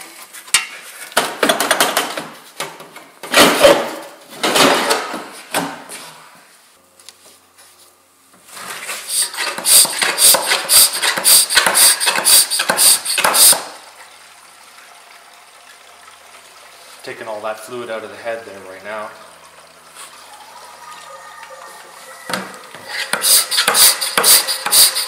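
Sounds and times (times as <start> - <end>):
hand pump squeaky strokes: 9.1 - 13.6, 20.0 - 25.0.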